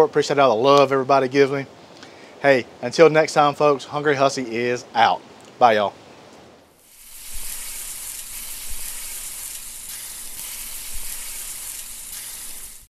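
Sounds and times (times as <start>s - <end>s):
food frying sizzle: 6.7s - 12.9s.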